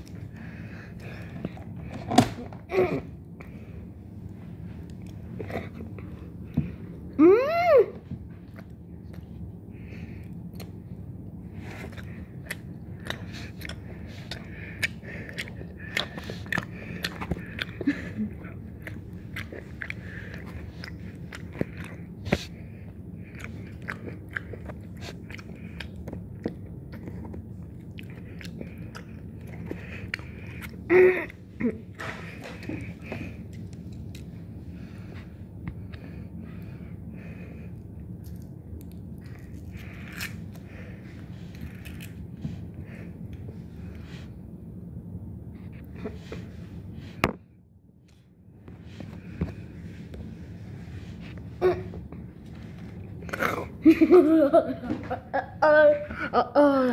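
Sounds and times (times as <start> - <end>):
person chewing chocolate: 4.8 - 7.1, 8.4 - 36.1, 37.6 - 43.6.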